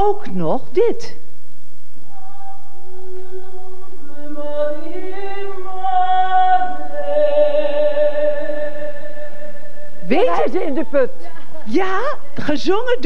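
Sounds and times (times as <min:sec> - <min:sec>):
woman singing slow melody: 0:02.1 - 0:11.4.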